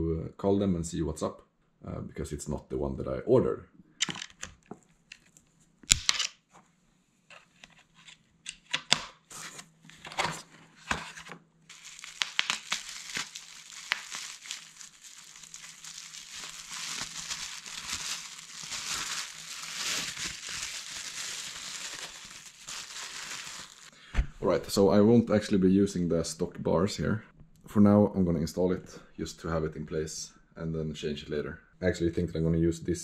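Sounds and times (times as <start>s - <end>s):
packing material clicks and rustles: 11.7s - 23.9s
bubble wrap crinkling: 11.7s - 24.0s.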